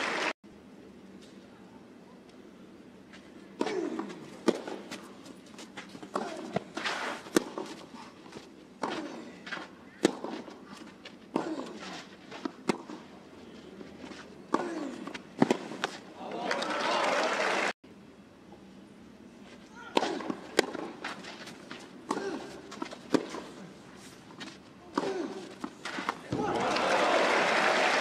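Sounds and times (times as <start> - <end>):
tennis ball struck by racket: 3.6 - 5.0, 6.1 - 7.8, 8.8 - 10.6, 11.3 - 13.0, 19.9 - 21.4, 22.1 - 23.5.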